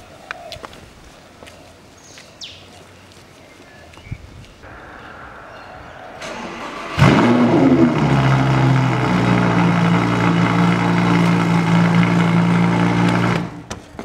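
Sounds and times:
car engine idling: 4.7s - 13.7s.

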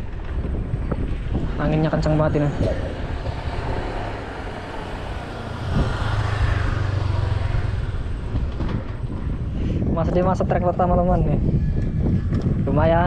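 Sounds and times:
low engine-like drone: 0.0s - 13.0s
wind buffeting microphone: 0.0s - 13.0s.

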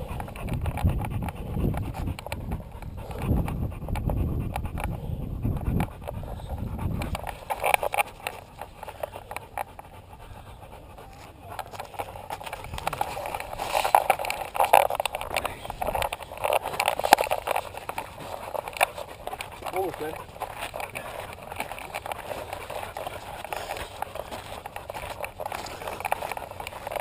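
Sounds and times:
camera knocking and rustling: 0.0s - 10.0s, 11.0s - 27.0s
dog footfalls on dirt trail: 11.0s - 27.0s.

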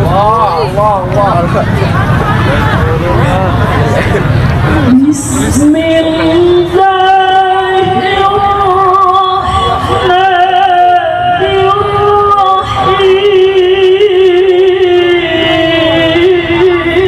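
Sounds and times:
woman reciting melodically: 4.8s - 17.0s.

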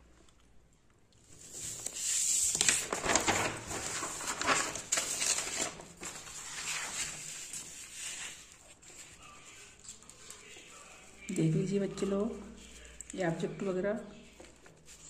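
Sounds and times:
paper rustling and crinkling: 1.2s - 11.3s, 14.2s - 15.0s.

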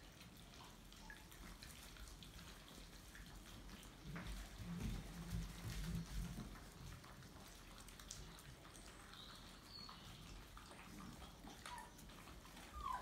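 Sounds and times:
puppies chewing kibble: 0.0s - 13.0s
high puppy squeaks: 11.4s - 13.0s.

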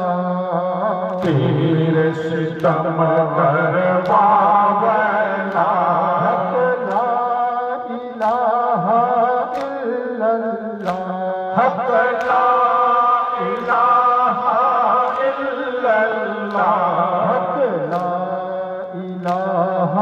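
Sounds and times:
men chanting in unison: 0.0s - 20.0s
chest-beating slaps: 1.2s - 3.0s, 9.5s - 9.8s, 17.8s - 18.3s.

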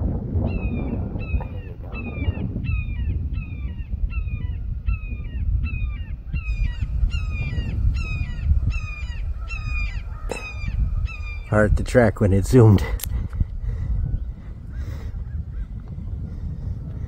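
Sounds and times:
wind rumble on microphone: 0.0s - 17.0s
hawk squawking: 5.9s - 11.5s.

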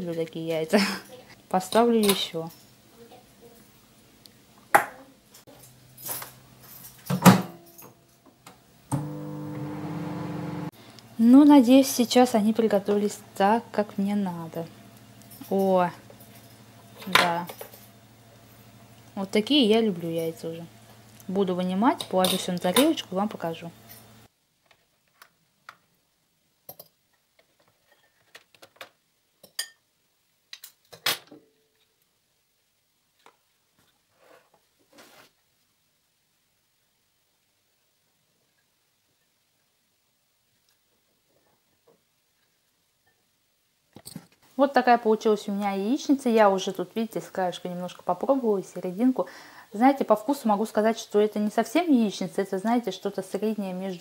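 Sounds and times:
microwave oven humming: 8.9s - 10.7s.

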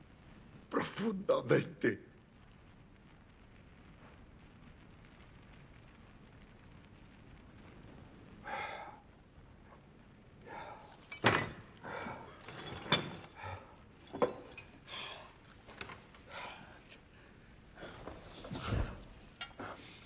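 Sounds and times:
tableware clinking: 11.0s - 11.8s, 12.4s - 14.8s.

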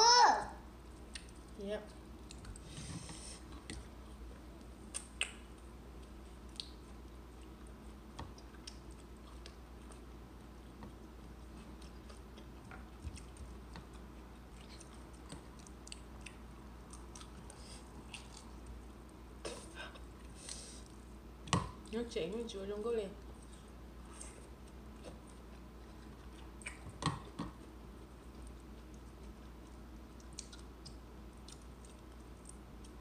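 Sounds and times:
chewing: 4.9s - 19.2s, 23.4s - 33.0s.

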